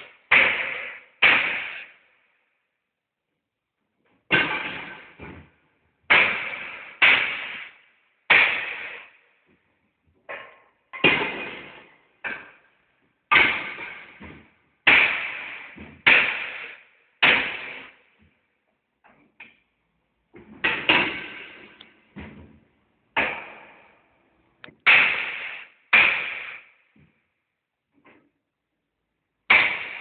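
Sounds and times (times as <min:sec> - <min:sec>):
hammer striking metal grate: 0:00.3 - 0:01.9, 0:04.3 - 0:05.2, 0:06.1 - 0:09.1, 0:10.3 - 0:12.6, 0:13.3 - 0:17.9, 0:20.6 - 0:21.9, 0:23.2 - 0:23.9, 0:24.7 - 0:26.7, 0:29.5 - 0:30.0.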